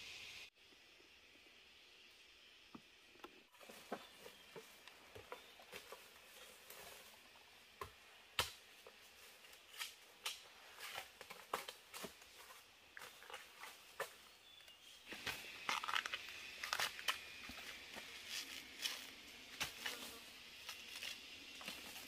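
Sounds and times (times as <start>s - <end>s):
faint hiss: 0.0s - 3.2s.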